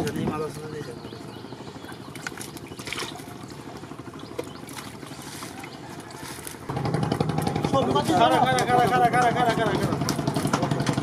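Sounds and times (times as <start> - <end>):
weeds and mud squelching: 1.7 - 7.7.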